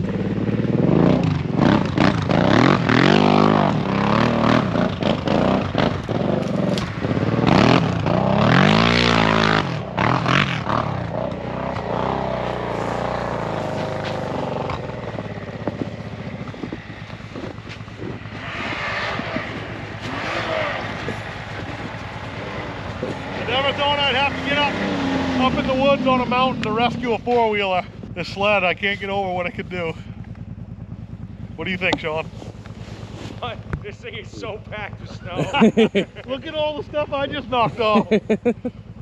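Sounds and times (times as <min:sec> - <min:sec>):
snowmobile engine revving: 0:00.0 - 0:30.2, 0:31.4 - 0:39.0
knocks and scraping: 0:10.6 - 0:25.0, 0:31.6 - 0:35.4.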